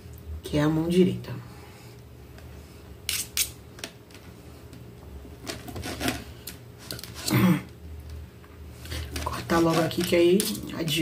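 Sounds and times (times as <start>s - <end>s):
knife scraping across plastic plate: 5.5s - 6.3s.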